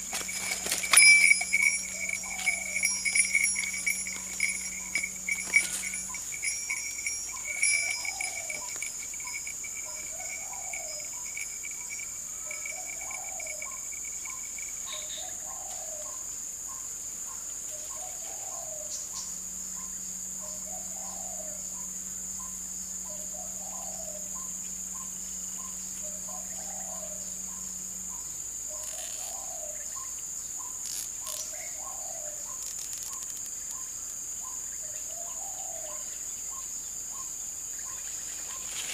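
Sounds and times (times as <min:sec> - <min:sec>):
rustles and knocks: 0:00.0 - 0:09.6
insects droning: 0:00.0 - 0:38.9
faint ticks: 0:32.6 - 0:34.2.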